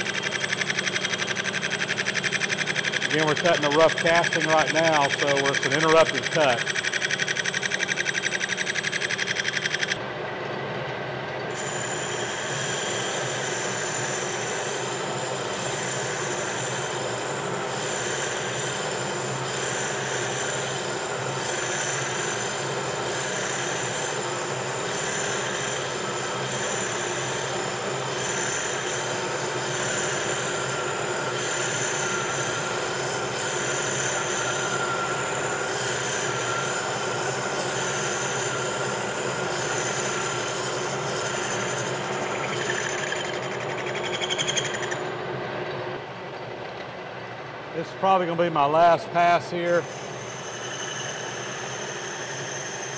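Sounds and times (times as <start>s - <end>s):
fast rattle of interrupted cut: 0.0s - 10.0s, 39.2s - 45.1s
lathe boring bar cutting metal: 0.0s - 10.0s, 11.5s - 45.3s, 49.2s - 52.9s.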